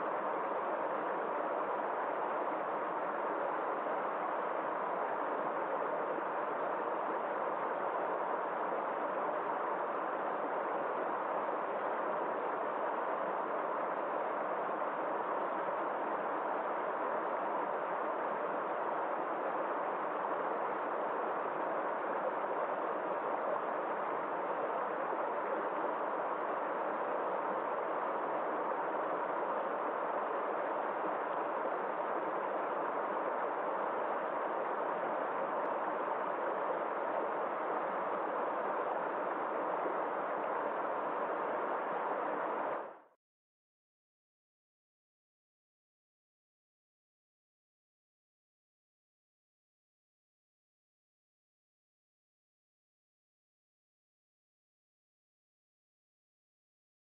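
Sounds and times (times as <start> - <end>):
stream rushing over boulders: 0.2 - 42.8.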